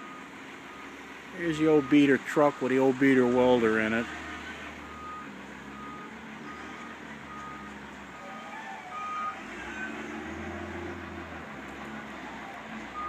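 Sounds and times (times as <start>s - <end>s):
reversing alarm beeping: 0.0s - 7.8s, 8.9s - 10.0s
engine humming: 0.0s - 13.0s.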